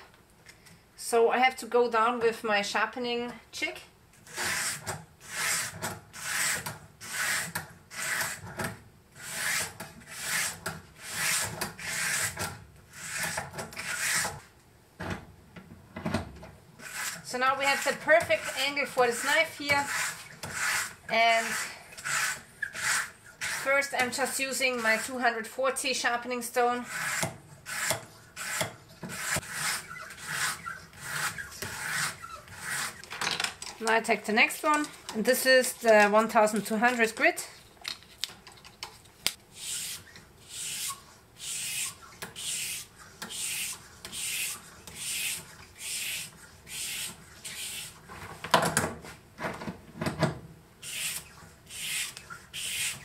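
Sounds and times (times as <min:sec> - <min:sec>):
sandpaper scraping knife edge: 0:04.3 - 0:08.5, 0:09.2 - 0:14.4, 0:16.8 - 0:25.2, 0:26.8 - 0:33.1, 0:39.5 - 0:48.0, 0:50.8 - 0:53.0.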